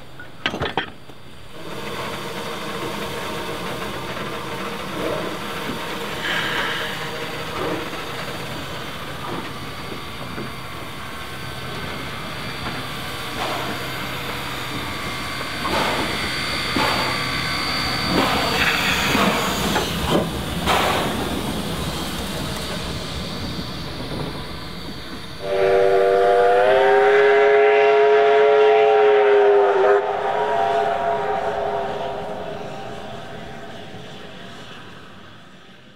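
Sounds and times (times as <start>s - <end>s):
steam locomotive hissing: 1.2s - 35.9s
steam whistle chord: 25.4s - 33.4s.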